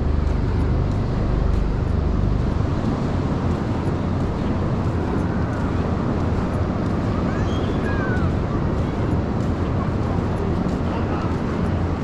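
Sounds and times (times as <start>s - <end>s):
wind rumbling on microphone: 0.0s - 12.0s.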